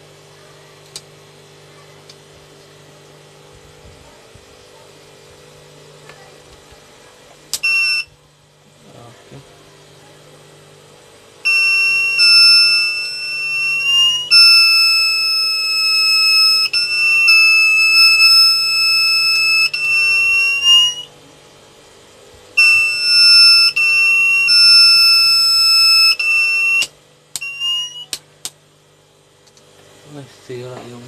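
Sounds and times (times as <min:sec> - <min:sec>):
high-pitched buzzer alarm tone: 0:07.5 - 0:08.2, 0:11.4 - 0:21.1, 0:22.6 - 0:28.2
short buzzer chirps: 0:07.5 - 0:08.2, 0:11.4 - 0:21.1, 0:22.6 - 0:28.2.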